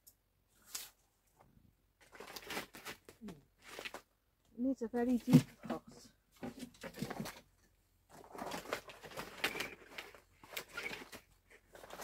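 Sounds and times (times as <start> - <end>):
roots rustling against plastic pot: 8.1 - 12.0.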